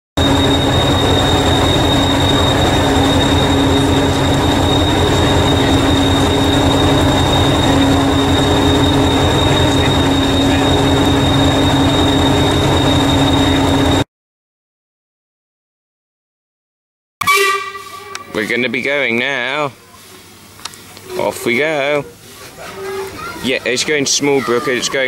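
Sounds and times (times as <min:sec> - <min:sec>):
diesel engine idling: 0:00.2 - 0:13.9
high whine: 0:00.2 - 0:14.0, 0:17.2 - 0:19.7.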